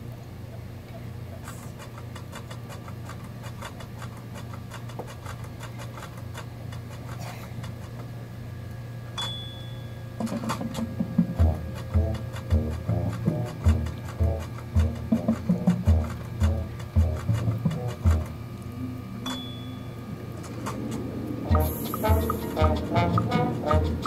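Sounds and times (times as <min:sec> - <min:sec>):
steady low hum: 0:00.0 - 0:24.0
marching band playing: 0:10.2 - 0:18.5, 0:20.1 - 0:24.0
fast even ticking: 0:10.2 - 0:24.0.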